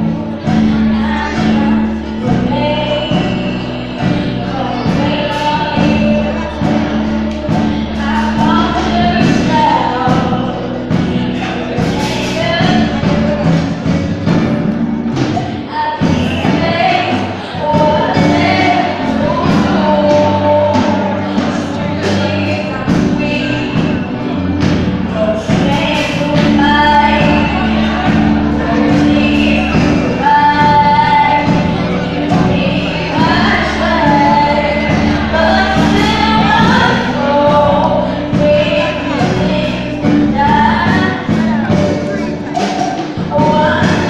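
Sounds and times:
children's choir singing: 0.0 - 44.0
lead voice on microphone: 0.0 - 44.0
sustained low chords: 16.1 - 42.6.

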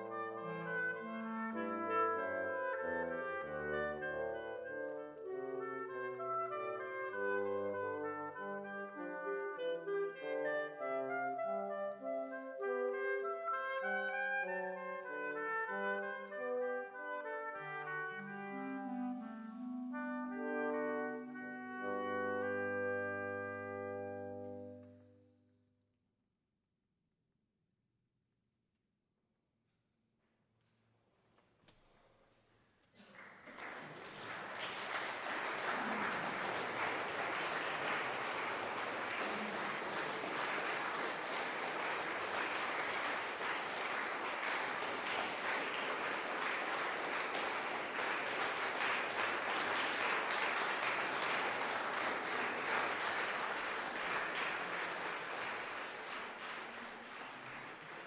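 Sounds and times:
audience applauding: 33.0 - 58.0.

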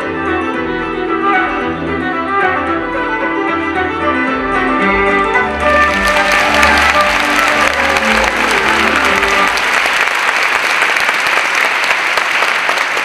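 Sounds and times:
stage music: 0.0 - 13.0
audience applauding: 5.5 - 13.0.

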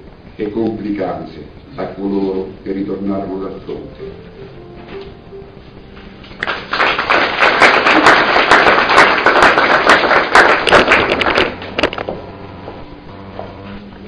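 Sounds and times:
audience applauding: 6.4 - 11.8.

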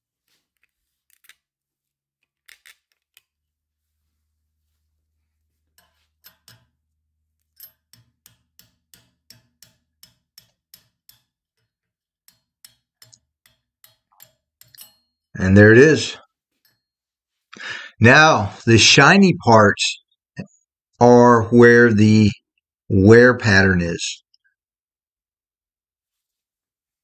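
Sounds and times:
hammer tapping on metal punch: 7.6 - 11.4.

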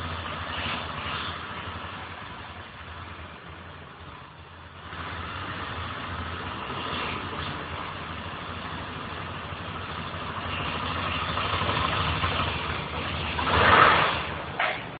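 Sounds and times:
motorcycle engine idling: 7.5 - 13.5.

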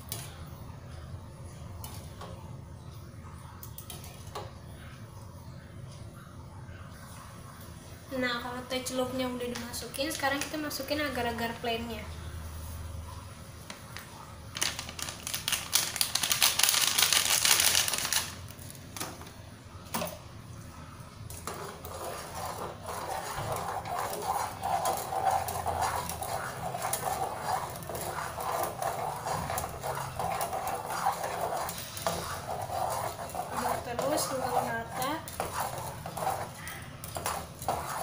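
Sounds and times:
whisk clicking and sloshing: 3.6 - 4.6, 13.6 - 20.4, 21.1 - 38.0
powder packet rustling: 14.5 - 19.0.

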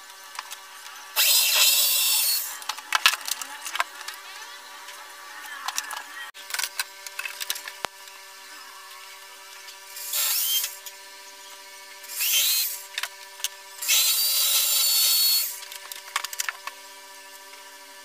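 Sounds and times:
electric drill whining: 1.2 - 2.7, 9.9 - 10.9, 12.0 - 13.0, 13.8 - 15.7.

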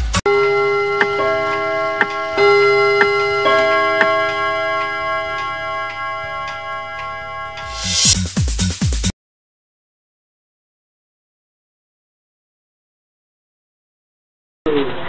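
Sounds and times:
clock ticking: 0.2 - 8.2
sustained bell-like tones: 0.3 - 8.2.

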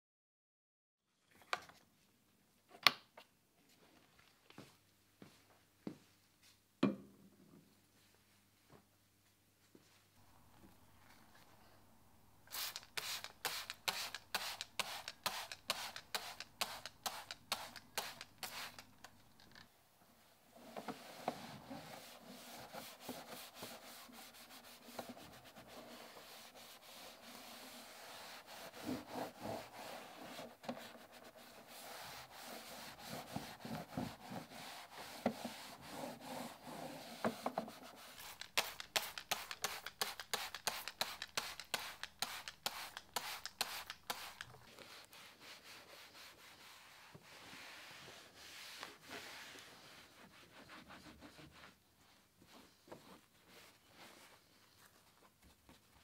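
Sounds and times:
cloth wiping plastic: 10.2 - 19.7, 20.5 - 55.3.

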